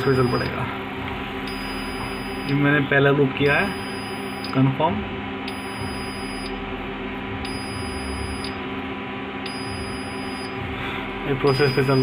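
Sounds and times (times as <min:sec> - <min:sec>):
electronic buzzer drone: 0:00.0 - 0:00.6, 0:01.3 - 0:02.8, 0:03.4 - 0:04.6, 0:05.4 - 0:06.7, 0:07.3 - 0:08.6, 0:09.4 - 0:12.0.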